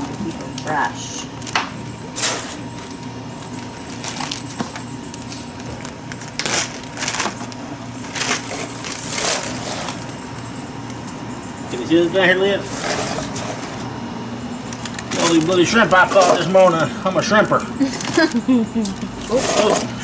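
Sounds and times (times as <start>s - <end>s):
plastic bags crinkling: 2.8s - 10.1s, 14.8s - 15.8s.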